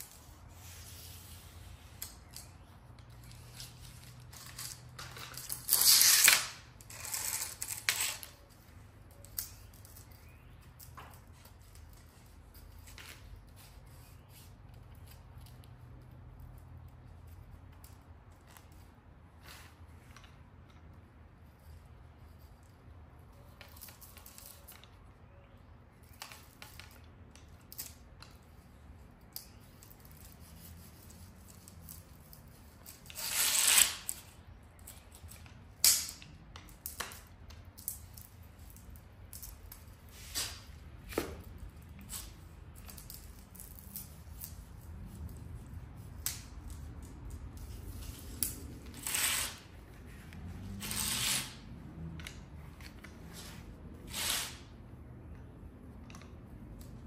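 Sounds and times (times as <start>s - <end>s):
spline roller scraping: 47.9s - 51.8s, 53.2s - 54.7s.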